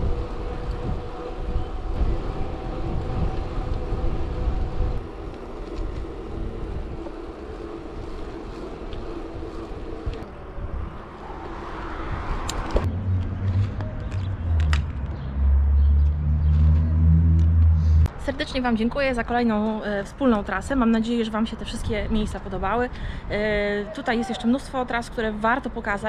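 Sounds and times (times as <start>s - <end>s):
tyre hum on asphalt: 0.0s - 10.3s
low rumble: 0.0s - 18.2s
wind buffeting microphone: 0.0s - 24.0s.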